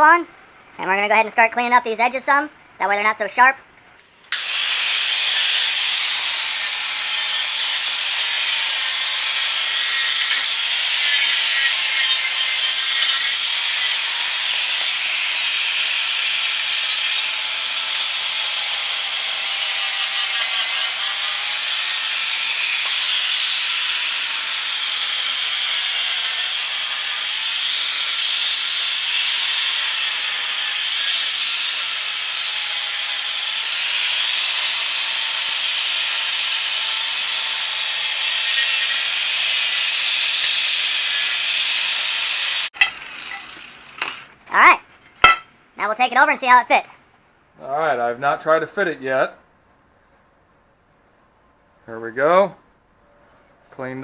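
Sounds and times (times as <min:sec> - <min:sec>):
angle grinder grinding metal: 0:04.3 - 0:44.3.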